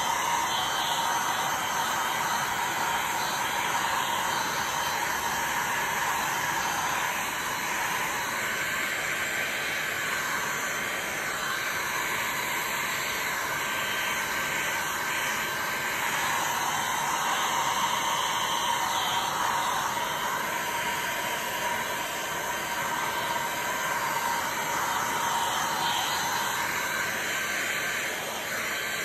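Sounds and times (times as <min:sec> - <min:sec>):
heat gun fan hissing: 0:00.0 - 0:29.0.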